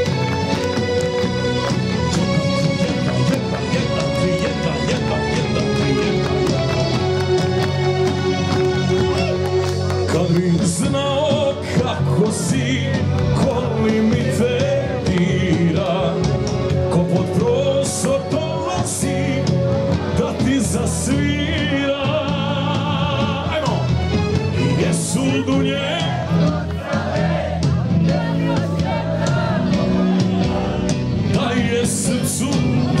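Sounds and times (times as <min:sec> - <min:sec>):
live pop-folk band backing: 0:00.0 - 0:33.0
man singing into microphone: 0:02.2 - 0:06.6, 0:10.0 - 0:24.0, 0:24.6 - 0:26.6, 0:29.7 - 0:33.0.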